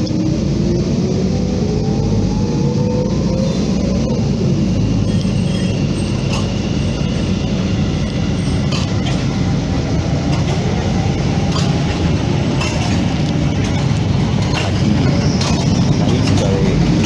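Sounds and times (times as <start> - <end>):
vehicle rumbling: 0.0 - 17.0
clinks and rattles: 11.5 - 17.0.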